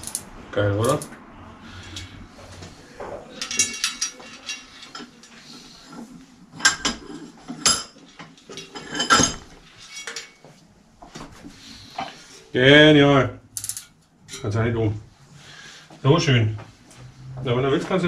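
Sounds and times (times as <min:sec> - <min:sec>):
small steel parts clinking: 0:00.0 - 0:00.2, 0:03.3 - 0:05.4, 0:13.6 - 0:14.5.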